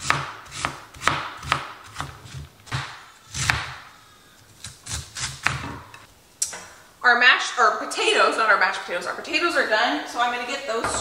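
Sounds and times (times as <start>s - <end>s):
knife slicing cabbage: 0.0s - 3.9s, 4.6s - 5.8s.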